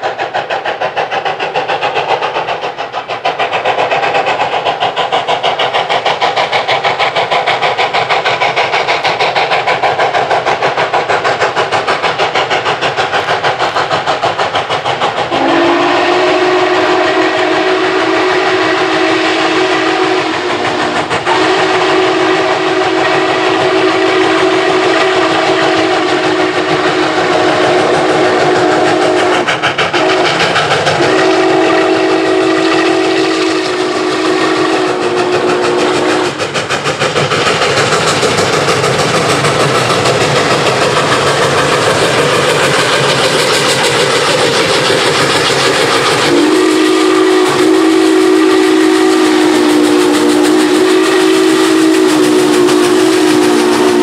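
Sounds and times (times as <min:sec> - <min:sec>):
steam locomotive exhaust chuffs: 0:00.0 - 0:54.0
chime steam whistle: 0:15.3 - 0:30.4, 0:31.0 - 0:36.4, 0:46.2 - 0:54.0.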